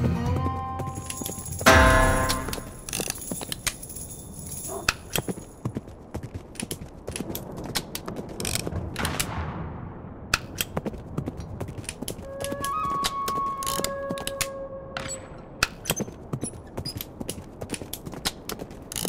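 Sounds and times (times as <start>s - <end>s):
slot machine clicks: 1.7s - 3.1s.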